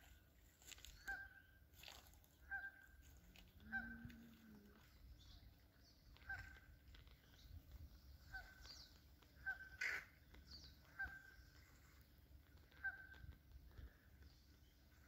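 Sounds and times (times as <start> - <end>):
faint bird calls: 0.1 - 15.0.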